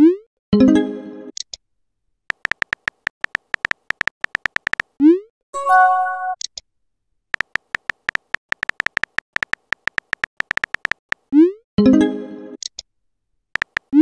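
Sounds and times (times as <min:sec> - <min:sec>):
keyboard tap clicks: 0:02.3 - 0:04.9, 0:07.4 - 0:11.2, 0:13.6 - 0:14.0.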